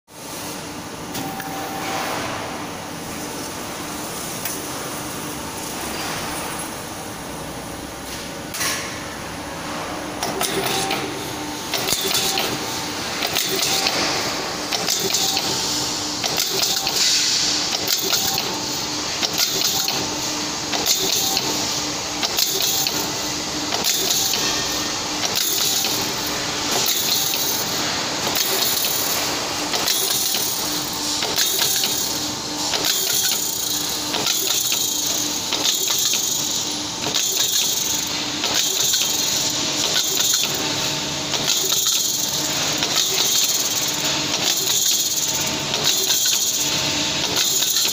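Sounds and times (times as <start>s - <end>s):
punching machine stroke on metal: 10.2s - 15.6s.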